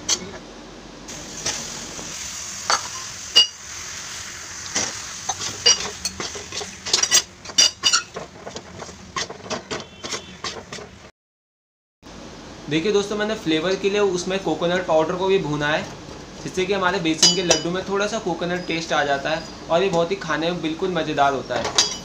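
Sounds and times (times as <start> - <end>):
spatula scraping metal pan: 5.3 - 11.0.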